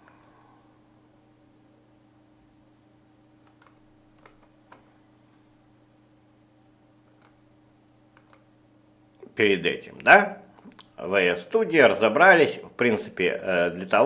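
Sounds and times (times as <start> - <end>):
computer mouse clicks: 0.0 - 0.3, 3.4 - 4.8, 7.0 - 7.4, 8.1 - 8.5, 10.6 - 11.0
faint steady hum: 0.0 - 14.0.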